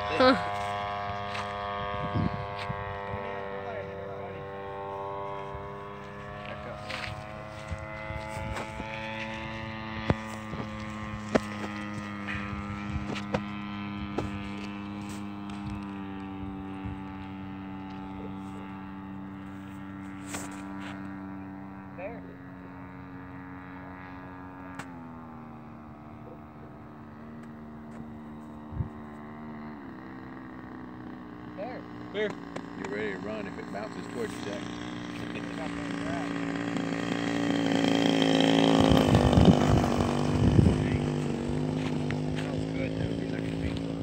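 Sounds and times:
model airplane engine droning: 0:00.0 - 0:44.0.

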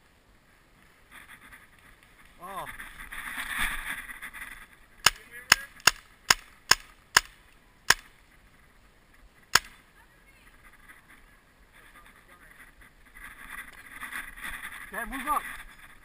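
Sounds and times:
paintball marker firing: 0:05.0 - 0:08.1, 0:09.5 - 0:09.8.

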